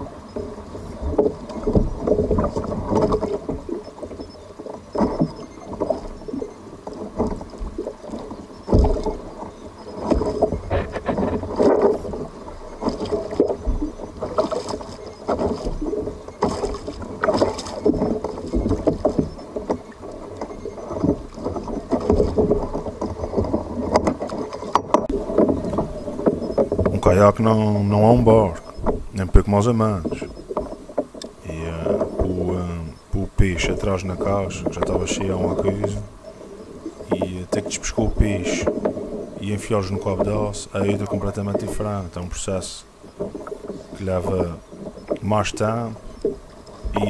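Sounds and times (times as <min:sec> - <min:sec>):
water splashing against kayak: 0:00.0 - 0:47.0
knocks on hull: 0:10.1 - 0:12.0.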